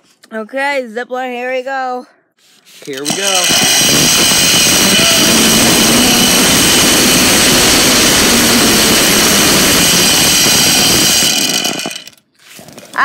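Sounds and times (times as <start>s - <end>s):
zip line trolley whirring: 3.0s - 12.2s.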